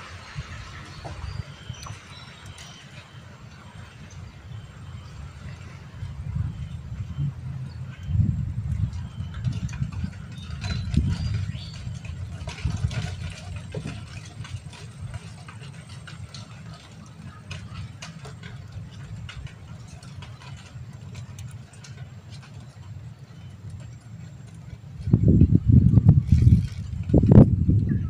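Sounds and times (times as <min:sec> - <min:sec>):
low steady rumble: 0:00.0 - 0:28.0.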